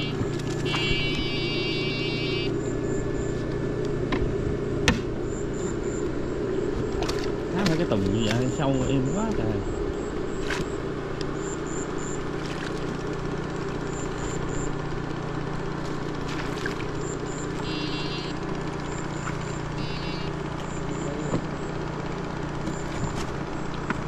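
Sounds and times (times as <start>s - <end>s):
short high beeps: 0.0s - 2.5s, 17.6s - 18.3s, 19.8s - 20.3s
rapid buzzing: 0.0s - 3.3s, 5.2s - 23.7s
boat engine running: 0.0s - 24.0s
net splashing through water: 6.9s - 8.5s, 12.2s - 13.3s, 15.8s - 17.7s.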